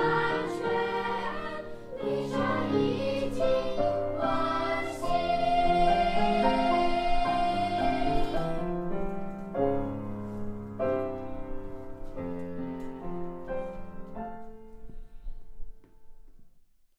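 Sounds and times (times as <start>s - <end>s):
children's choir singing: 0.0s - 8.9s
piano chords: 0.0s - 16.3s.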